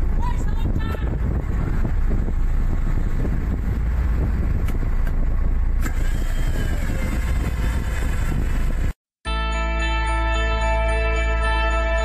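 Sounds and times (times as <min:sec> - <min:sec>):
ship engine rumble: 0:00.0 - 0:09.0.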